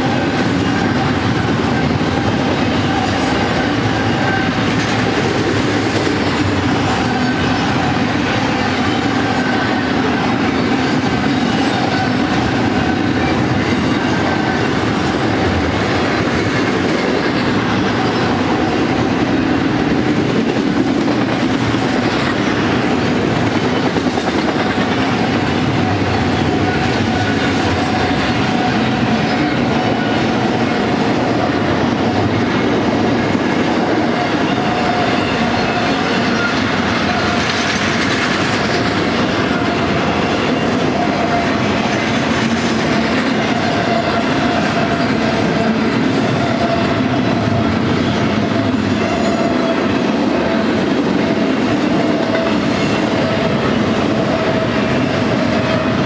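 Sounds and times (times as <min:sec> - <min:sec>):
steel wheels running on rails: 0:00.0 - 0:56.0.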